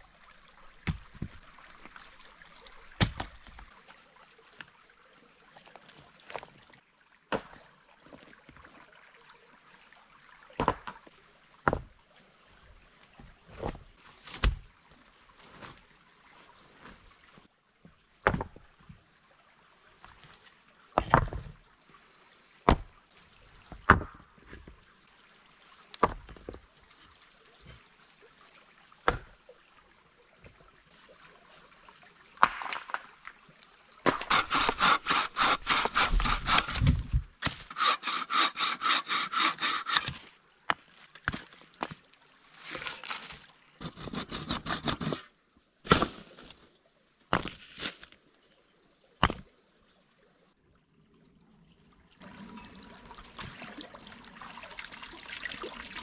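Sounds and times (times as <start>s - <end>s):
faint stream: 0.0s - 56.0s
stones clunking together: 47.3s - 48.2s, 49.2s - 49.5s.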